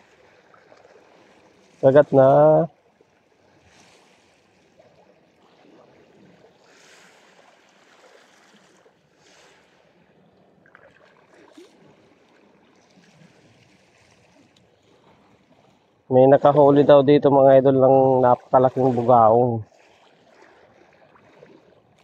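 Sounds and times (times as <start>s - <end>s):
small waves lapping: 0.0s - 22.0s
light splashing at water surface: 18.2s - 22.0s.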